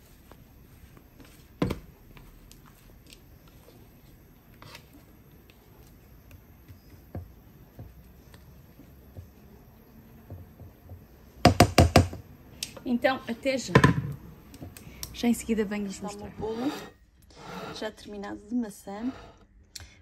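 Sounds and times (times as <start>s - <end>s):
spatula scraping bowl: 16.0s - 18.2s.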